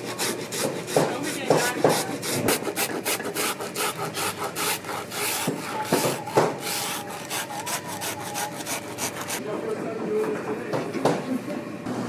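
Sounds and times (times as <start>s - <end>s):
rasp scraping leather: 0.0s - 9.4s.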